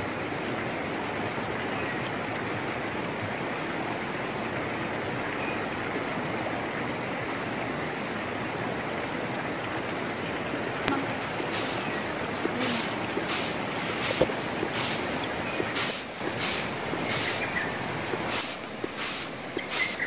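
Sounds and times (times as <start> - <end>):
combine harvester rushing: 10.9 - 20.0
grain swishing in winnowing trays: 10.9 - 20.0.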